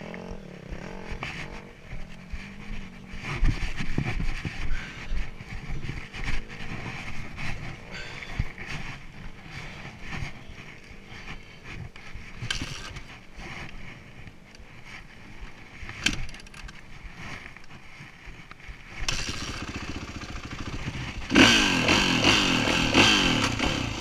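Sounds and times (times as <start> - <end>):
wind buffeting microphone: 0.0 - 16.2
knocks and rattles of dirt bike: 0.0 - 24.0.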